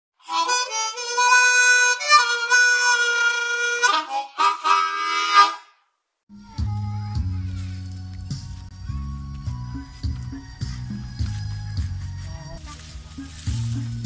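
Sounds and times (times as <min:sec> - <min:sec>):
reedy instrumental jingle chords: 0:06.3 - 0:14.0.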